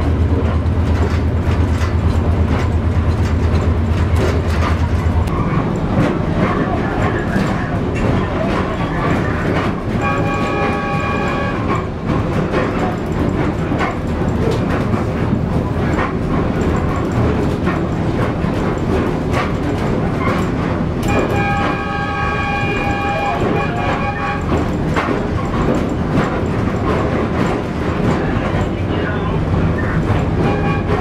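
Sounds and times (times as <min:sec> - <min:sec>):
railcar engine and wheel rumble: 0:00.0 - 0:31.0
train horn blast: 0:09.9 - 0:11.9, 0:21.0 - 0:24.7, 0:30.4 - 0:31.0.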